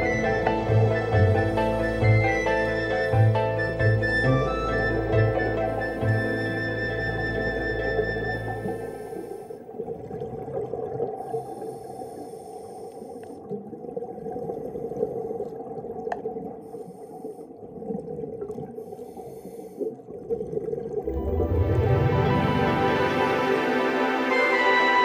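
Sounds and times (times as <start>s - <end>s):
bubbles: 0.0s - 11.8s, 13.4s - 16.7s, 17.6s - 18.9s, 19.9s - 23.0s
muffled underwater water noise: 0.0s - 24.3s
diver regulator breathing: 1.0s - 4.1s, 5.5s - 6.8s, 8.4s - 9.7s, 11.2s - 13.5s, 16.6s - 17.6s, 18.7s - 20.0s.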